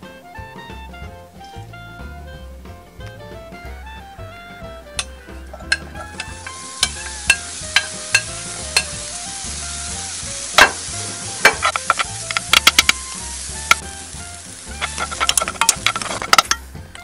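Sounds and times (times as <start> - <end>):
cucumber sizzling in a frying pan: 5.0 - 16.6
wooden spoon scraping a pan: 5.5 - 16.7.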